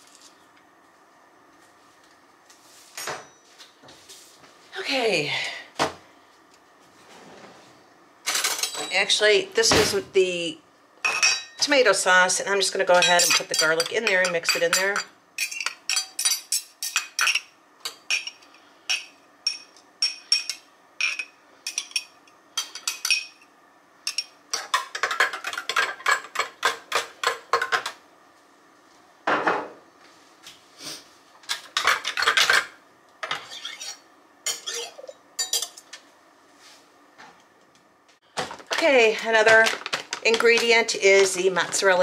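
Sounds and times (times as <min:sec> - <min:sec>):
knife clinking and scraping glass: 0:13.0 - 0:17.4, 0:33.2 - 0:35.8.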